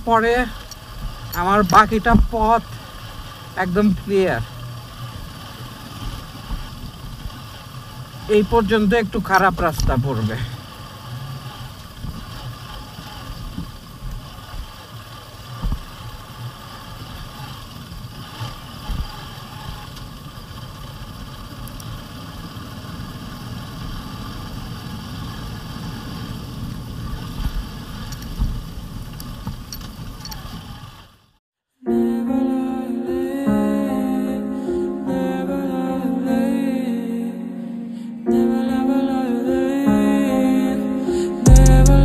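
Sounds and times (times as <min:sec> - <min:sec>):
motorcycle engine running: 0:00.0 - 0:31.4, 0:41.4 - 0:42.0.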